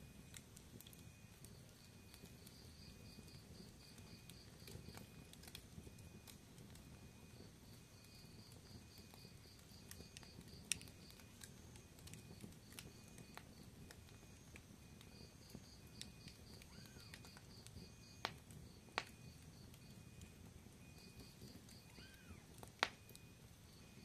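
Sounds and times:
fire popping: 0:00.0 - 0:24.0
wood fire crackling: 0:00.0 - 0:24.0.

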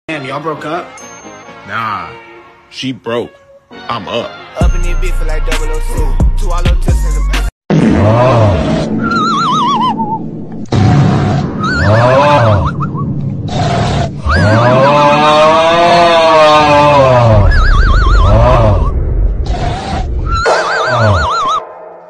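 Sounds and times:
horse whinnying: 0:11.6 - 0:12.8, 0:13.6 - 0:18.9, 0:19.5 - 0:21.6.

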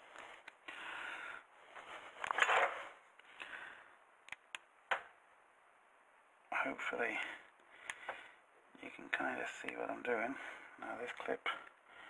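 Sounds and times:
rustling and scraping: 0:00.0 - 0:00.6, 0:01.6 - 0:03.2.

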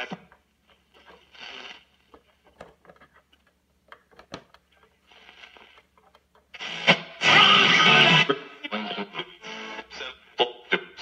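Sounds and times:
radio static clicks and crackle: 0:00.0 - 0:07.0.

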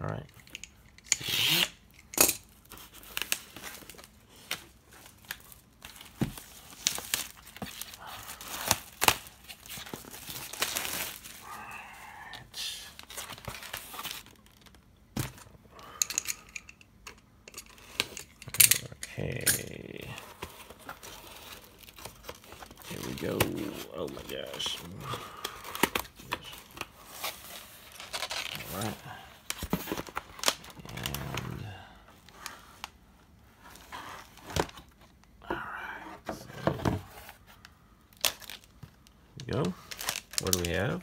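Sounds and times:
cardboard tearing and crinkling: 0:02.6 - 0:11.7, 0:12.9 - 0:14.8, 0:19.9 - 0:31.7.

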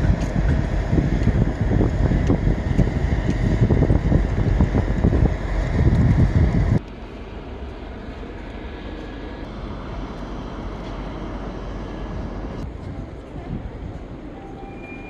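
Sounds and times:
wind buffeting microphone: 0:00.0 - 0:06.8, 0:09.4 - 0:14.5
railway station low rumble: 0:00.0 - 0:15.0.

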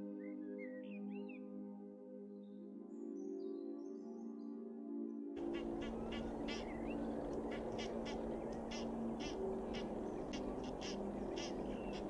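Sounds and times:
geese honking harshly: 0:05.4 - 0:12.0.

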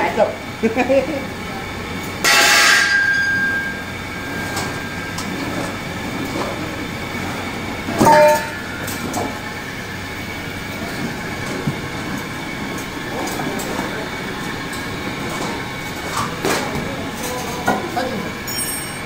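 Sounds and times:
ringing metal knocks: 0:02.2 - 0:03.9, 0:08.0 - 0:09.0
rumble of handling noise: 0:03.3 - 0:18.0.

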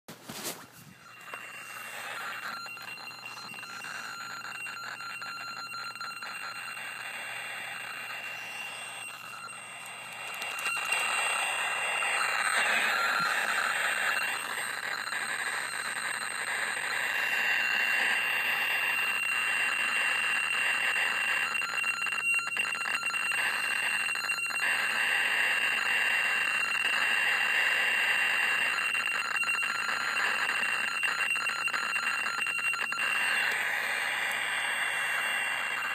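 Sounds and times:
radio static hiss: 0:00.2 - 0:21.5, 0:32.9 - 0:35.9.

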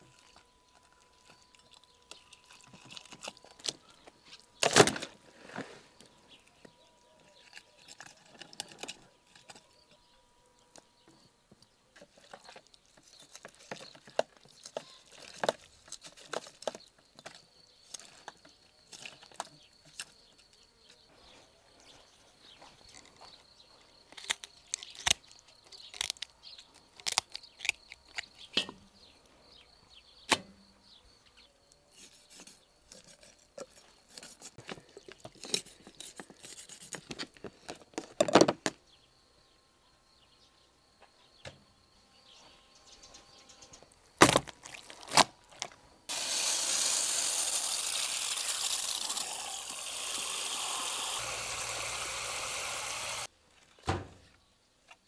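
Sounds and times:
shears snipping: 0:46.1 - 0:53.3
water spraying from shower head: 0:46.1 - 0:53.3.

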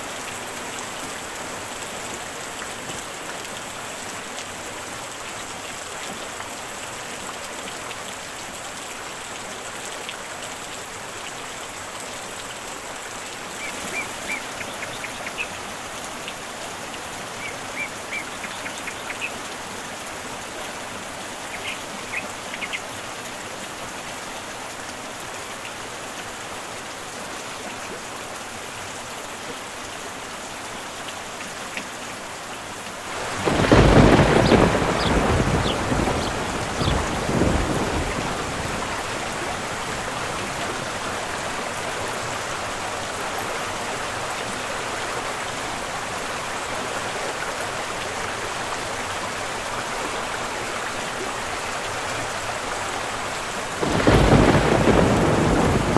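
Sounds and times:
rain falling on pool water: 0:00.0 - 0:55.9
deep thunder rumble: 0:33.3 - 0:38.9, 0:53.8 - 0:55.9.

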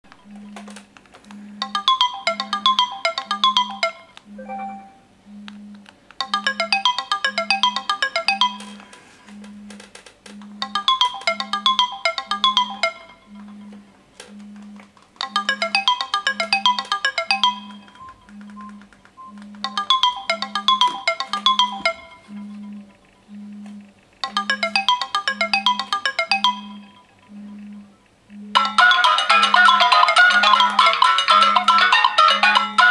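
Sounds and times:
phone vibrating on table: 0:00.2 - 0:32.9
marimba-like phone alarm tone: 0:01.6 - 0:09.7, 0:10.5 - 0:32.9.

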